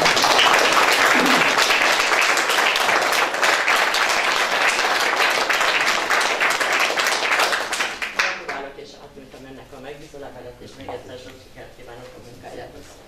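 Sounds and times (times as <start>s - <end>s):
hands clapping: 0.0s - 8.7s.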